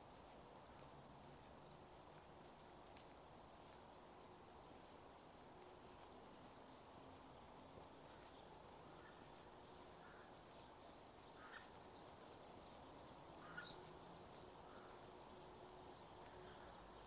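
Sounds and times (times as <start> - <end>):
faint bird calls: 5.9 - 17.0.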